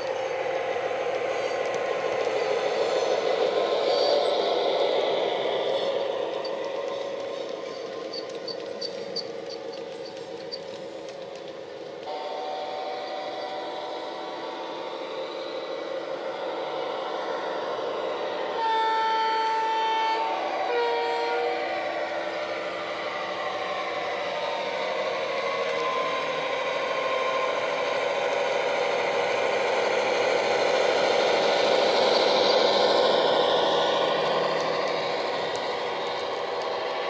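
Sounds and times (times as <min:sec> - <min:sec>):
two-tone train horn: 0:12.0 - 0:14.8, 0:18.5 - 0:22.2.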